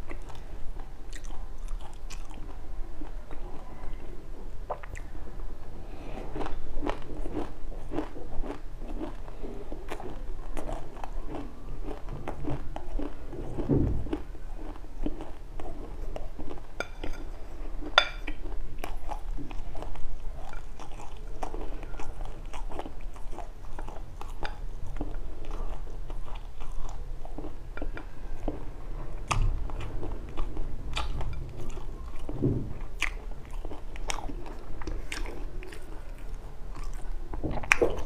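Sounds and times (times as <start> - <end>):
chewing dry seeds: 0.0 - 5.1, 5.9 - 38.0
low thud: 13.6 - 14.1, 32.2 - 32.9.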